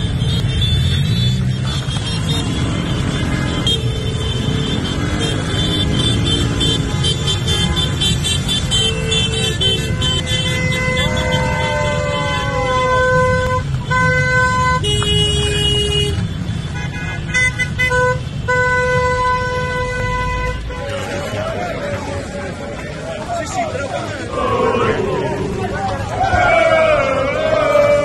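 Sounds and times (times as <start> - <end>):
car and scooter horns honking: 0.0 - 21.0
din of engines: 0.0 - 28.0.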